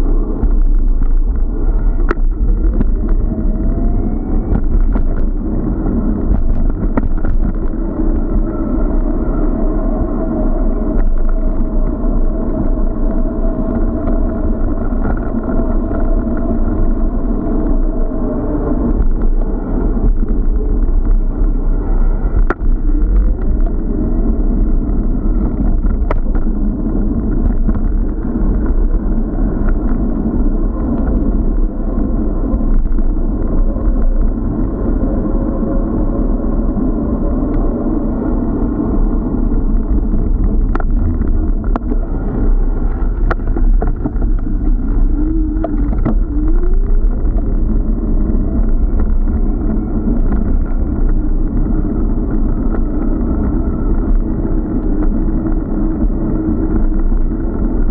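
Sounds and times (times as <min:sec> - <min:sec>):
wind and tyre rumble: 0:00.0 - 0:57.9
clicks and knocks from bumps: 0:39.5 - 0:42.1.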